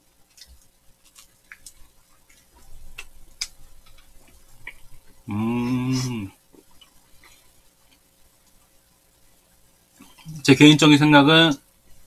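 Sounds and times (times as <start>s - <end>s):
people chewing pastry: 0.0s - 8.7s.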